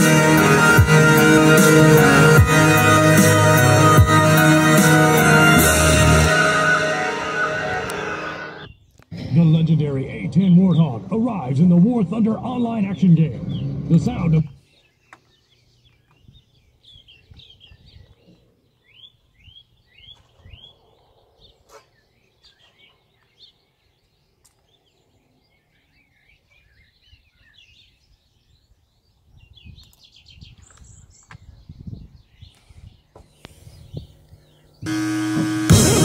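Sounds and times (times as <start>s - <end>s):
small birds chirping: 8.6s - 34.9s
low rumbling: 9.1s - 14.6s.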